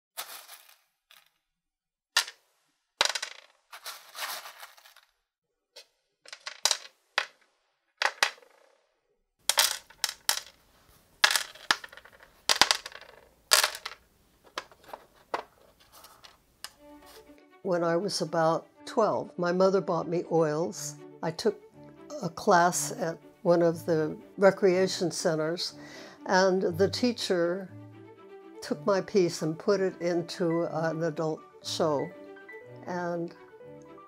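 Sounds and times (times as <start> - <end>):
pebbles clicking on wood: 6.3 - 7.4, 9.5 - 10.6, 11.2 - 16.8.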